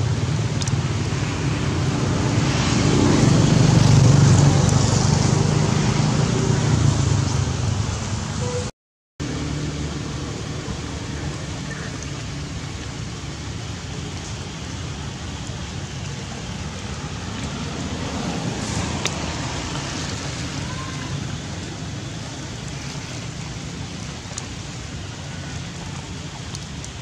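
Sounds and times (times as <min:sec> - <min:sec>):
heavy rain on stones and leaves: 0:09.3 - 0:27.0.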